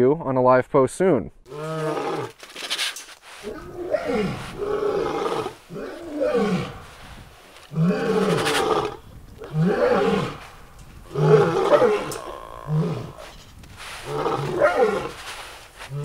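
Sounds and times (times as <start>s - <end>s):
big cat roaring: 1.5s - 2.4s, 3.4s - 6.9s, 7.7s - 13.4s, 14.0s - 15.2s.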